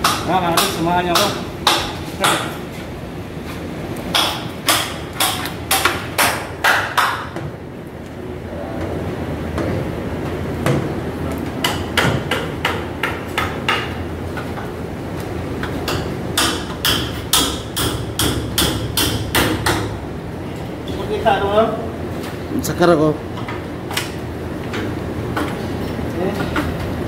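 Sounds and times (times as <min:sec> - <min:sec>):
low steady hum: 0:00.0 - 0:27.0
sharp hammer-like knocks: 0:04.1 - 0:07.5, 0:11.6 - 0:14.0, 0:15.8 - 0:20.0.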